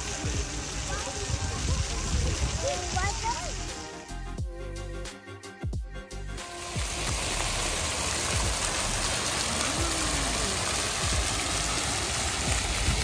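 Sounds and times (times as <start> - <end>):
fountain water splashing: 0.0 - 4.0, 6.4 - 13.0.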